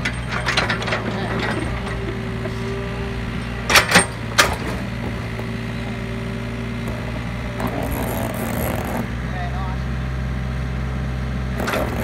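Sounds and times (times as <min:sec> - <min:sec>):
excavator bucket clanking: 0:00.0 - 0:05.8, 0:11.6 - 0:12.0
diesel engine running: 0:00.0 - 0:12.0.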